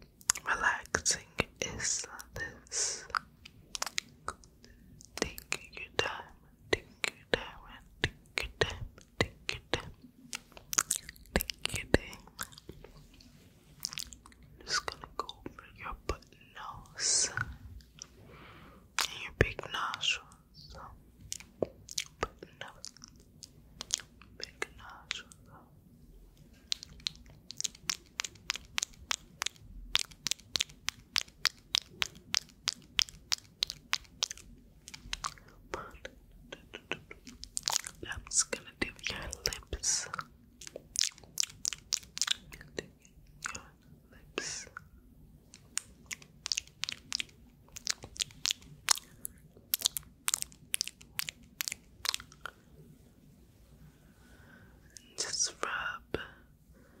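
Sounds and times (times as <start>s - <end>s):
gum chewing mouth clicks: 0.2s - 0.5s, 3.0s - 6.2s, 6.8s - 13.2s, 13.8s - 16.3s, 19.0s - 20.0s, 20.8s - 25.4s, 26.5s - 43.7s, 45.5s - 52.6s.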